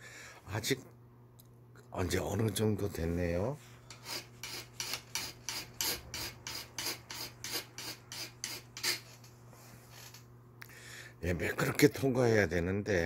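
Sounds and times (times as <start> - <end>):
sandpaper rubbing on metal: 3.9 - 9.2.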